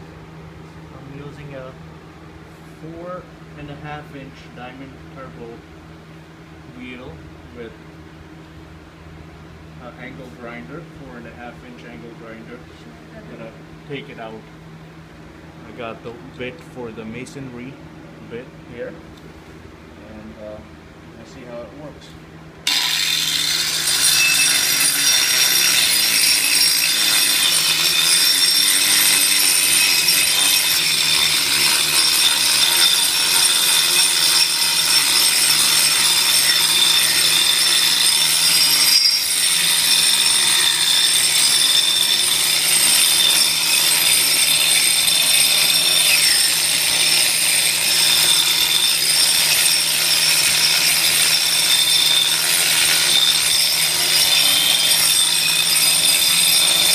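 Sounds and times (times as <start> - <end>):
angle grinder grinding concrete: 22.6 - 56.9.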